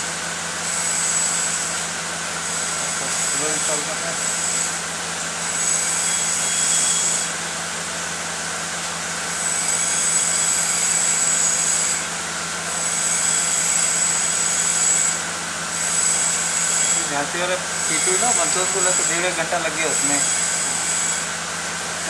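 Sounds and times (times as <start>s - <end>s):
high thin whine: 15.8s - 22.0s.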